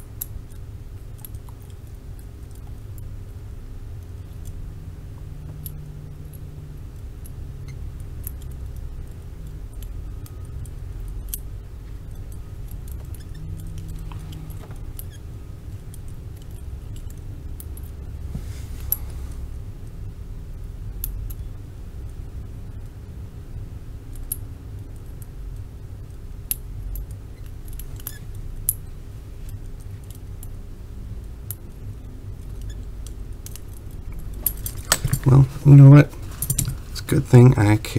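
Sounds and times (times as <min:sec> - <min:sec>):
handcuff lock clicking: 0:32.5 - 0:35.4, 0:36.4 - 0:36.8.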